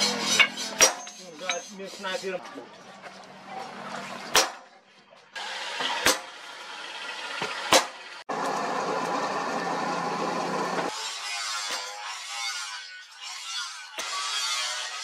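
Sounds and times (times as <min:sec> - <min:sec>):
hammer striking a steel punch: 0:00.4 - 0:01.2.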